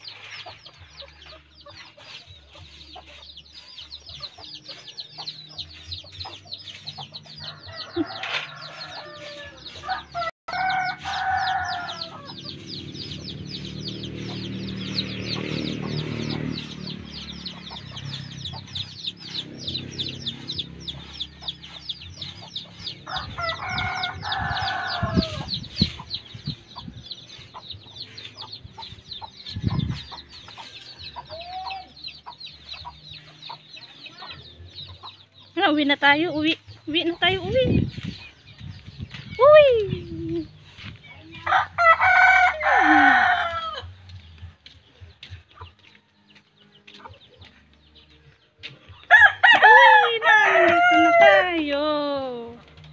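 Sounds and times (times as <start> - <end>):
chickens clucking: 0.0 - 49.2
rooster crowing: 7.4 - 12.4, 23.1 - 25.5, 41.5 - 43.9, 49.1 - 51.5.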